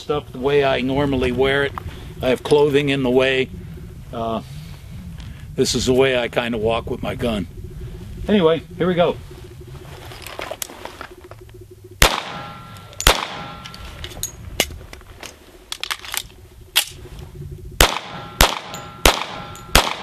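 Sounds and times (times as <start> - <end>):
pistol shots: 12.0 - 13.8, 17.8 - 20.0
magazine clicks: 12.0 - 17.0.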